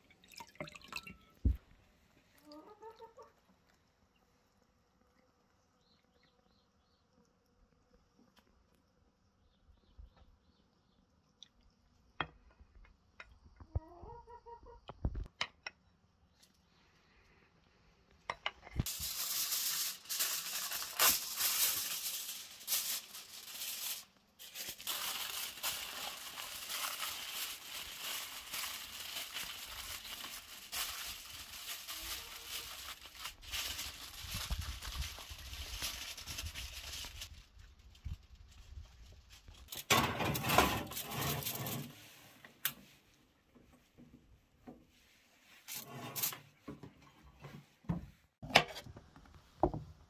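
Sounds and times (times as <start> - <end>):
aluminium foil crinkling: 18.8 - 42.0.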